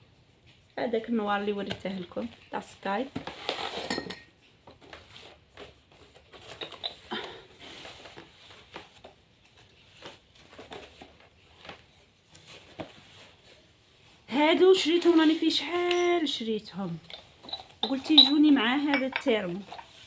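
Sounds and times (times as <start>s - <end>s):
cardboard boxes being handled: 4.6s - 13.8s.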